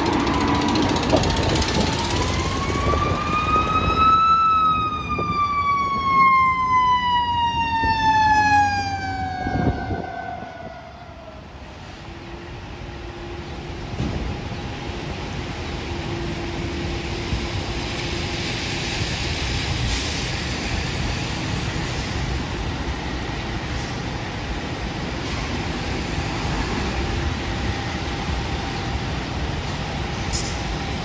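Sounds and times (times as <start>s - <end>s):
fire truck siren: 0.0s - 14.3s
road traffic noise: 0.0s - 31.0s.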